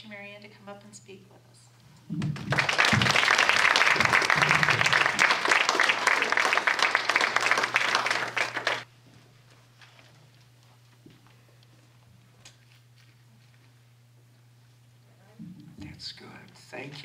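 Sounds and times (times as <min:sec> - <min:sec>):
audience applauding: 0:02.2 - 0:08.9.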